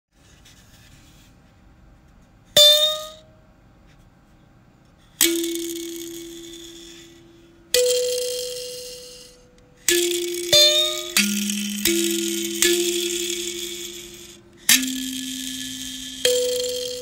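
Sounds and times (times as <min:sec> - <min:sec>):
ringing clanging strikes: 0:02.6 - 0:03.3, 0:05.2 - 0:17.0.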